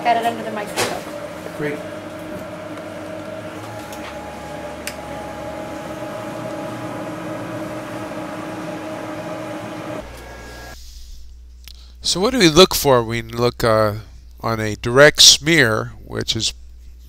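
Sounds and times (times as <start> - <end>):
machine hum with fan hiss: 0.0 - 10.8.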